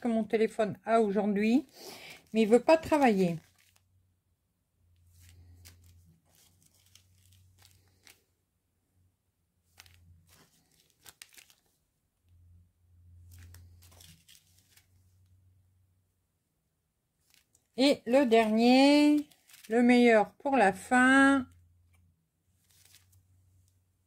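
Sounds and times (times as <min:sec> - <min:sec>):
plastic bags crinkling and clicking: 0:02.0 - 0:03.8, 0:05.1 - 0:08.2, 0:09.7 - 0:11.8, 0:13.3 - 0:14.9, 0:17.2 - 0:19.8.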